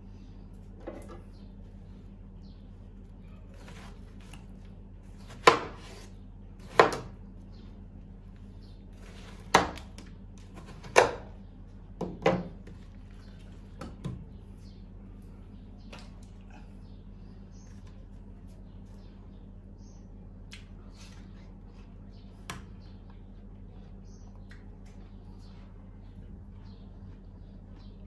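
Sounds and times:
knife chopping on wooden board: 5.3s - 7.2s, 9.0s - 11.3s.

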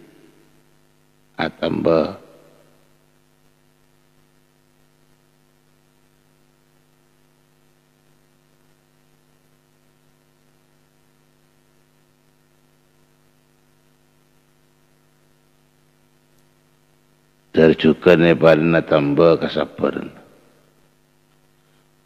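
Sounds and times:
electrical hum with hiss: 0.0s - 22.0s.

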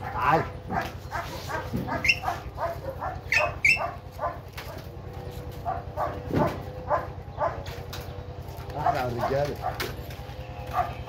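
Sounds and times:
dog barking and yipping: 0.0s - 7.9s, 8.7s - 11.0s.

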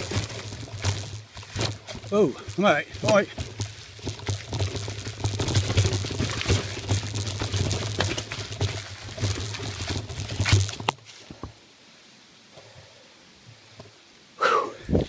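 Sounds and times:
bike tyres crackling over leaves: 0.0s - 11.8s.

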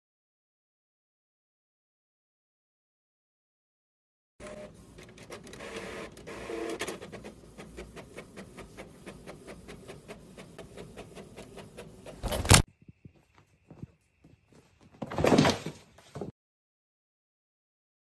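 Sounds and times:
inkjet printer carriage whirring: 4.4s - 12.6s.

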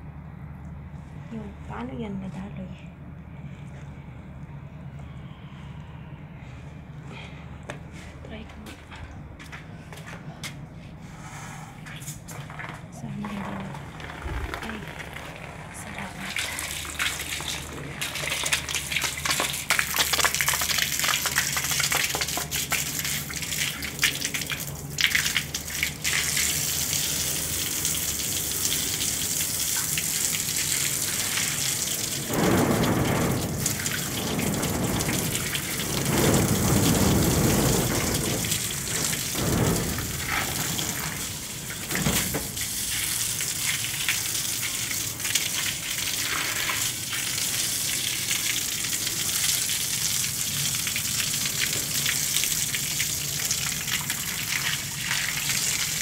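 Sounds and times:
hose water spattering on tiles: 11.9s - 56.0s.

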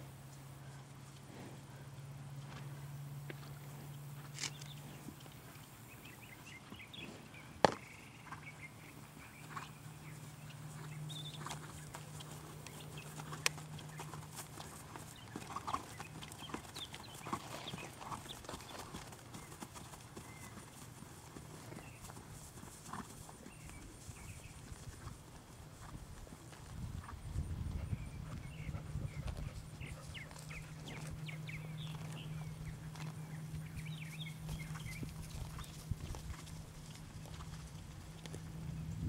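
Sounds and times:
horse hoofbeats on grass: 0.0s - 39.0s
steady low hum: 0.0s - 39.0s.

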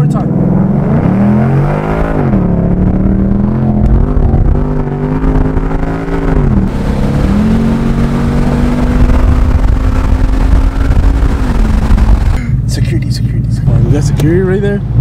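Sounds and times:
car engine accelerating hard: 0.0s - 12.9s.

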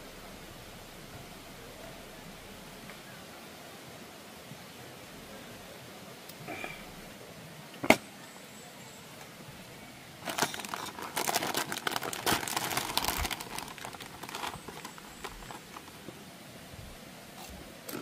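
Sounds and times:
crinkling and crackling: 10.2s - 16.2s.

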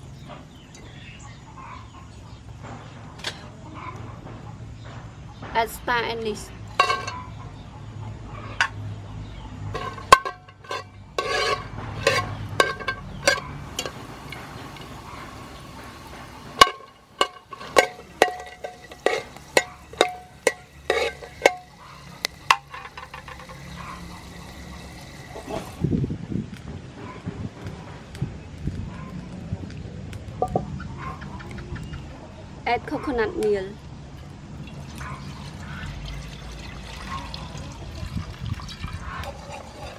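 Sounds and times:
pot ringing: 6.7s - 7.3s, 9.8s - 15.7s, 16.5s - 25.5s
metal ladle scraping metal pot: 6.7s - 7.4s, 9.7s - 25.8s, 38.8s - 39.9s.

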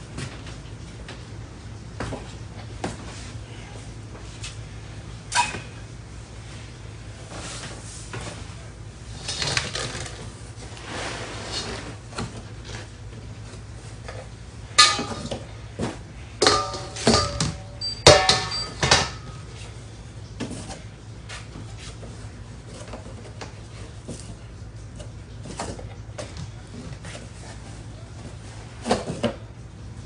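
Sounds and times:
metal bowl clanking: 14.7s - 15.6s, 16.4s - 19.4s.

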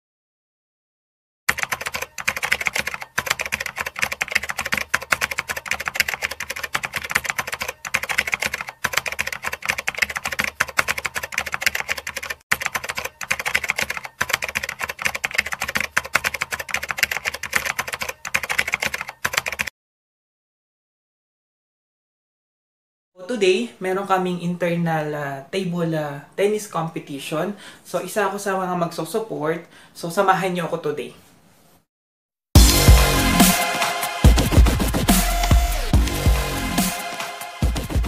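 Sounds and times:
rapid keyboard typing clicks: 1.5s - 19.7s.

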